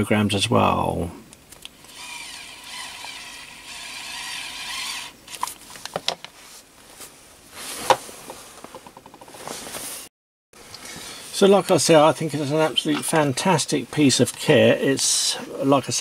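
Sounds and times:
electric screwdriver motor whining: 1.8s - 5.5s.

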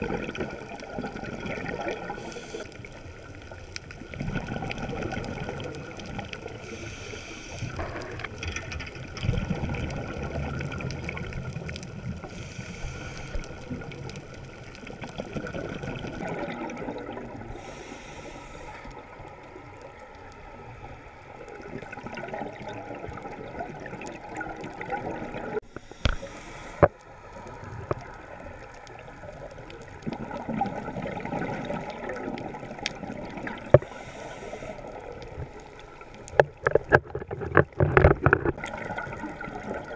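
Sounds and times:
exhaled bubbles gurgling underwater: 0.0s - 39.9s
hissy regulator inhalations: 2.1s - 2.8s, 6.6s - 8.2s, 12.2s - 13.8s, 17.5s - 19.1s, 25.6s - 27.0s, 33.8s - 35.2s.

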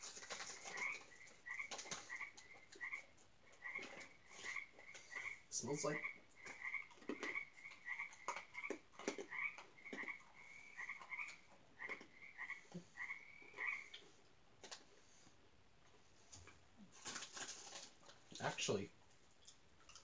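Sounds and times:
frogs croaking: 0.0s - 14.1s.

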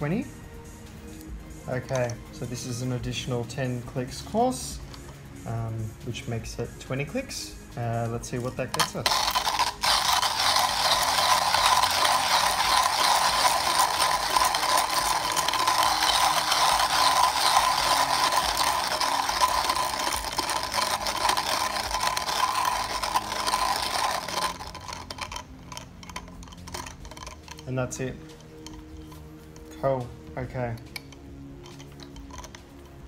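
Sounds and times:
hand coffee grinder crunching beans: 8.8s - 29.8s, 30.9s - 33.0s.

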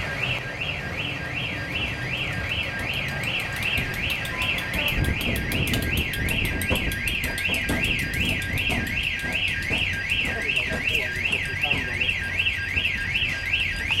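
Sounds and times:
diesel locomotive running: 0.0s - 14.0s
warbling level crossing alarm: 0.0s - 14.0s
train wheel knocks: 3.0s - 14.0s.

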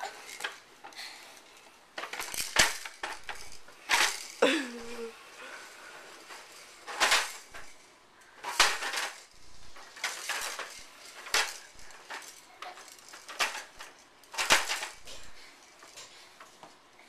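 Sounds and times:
plastic walker clattering: 6.2s - 7.8s, 8.4s - 16.8s.

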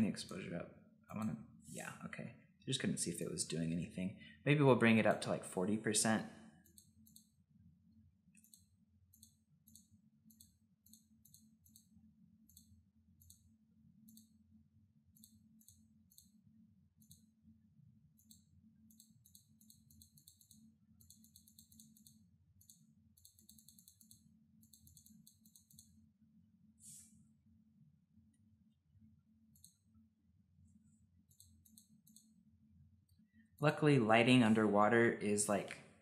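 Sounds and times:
mouse and keyboard clicking: 8.4s - 11.9s, 18.2s - 26.0s, 31.3s - 32.3s.

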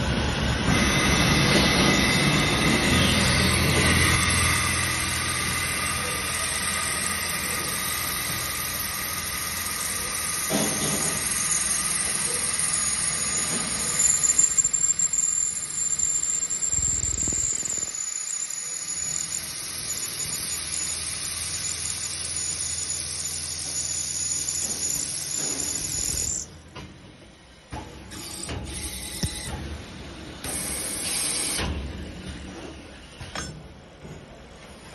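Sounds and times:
thin high whine: 0.0s - 26.6s
drilling machine humming: 0.0s - 26.7s.

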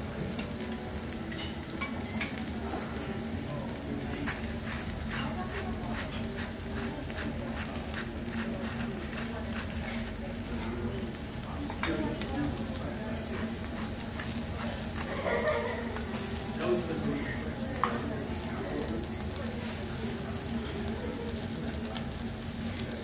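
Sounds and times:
food sizzling on griddle: 0.0s - 23.0s.

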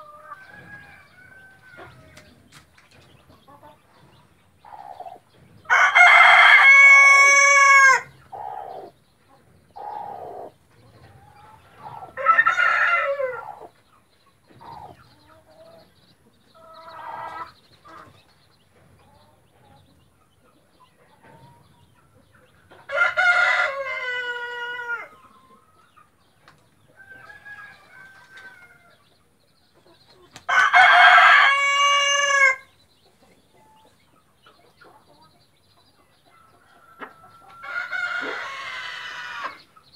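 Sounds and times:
rooster crowing: 5.7s - 8.1s, 12.2s - 13.5s, 22.9s - 25.1s, 30.5s - 32.7s, 36.7s - 39.6s.

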